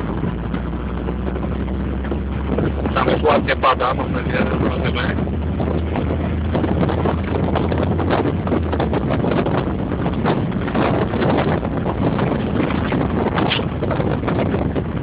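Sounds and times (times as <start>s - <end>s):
car engine hum: 0.0s - 15.0s
road noise: 0.0s - 15.0s
wind buffeting microphone: 0.0s - 15.0s.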